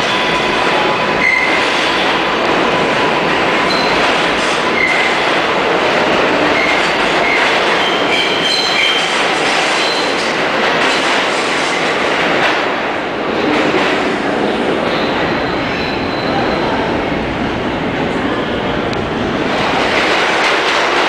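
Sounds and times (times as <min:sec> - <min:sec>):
subway train rumbling: 0:00.0 - 0:21.0
high-pitched wheel squeals: 0:03.7 - 0:04.1, 0:07.8 - 0:09.1.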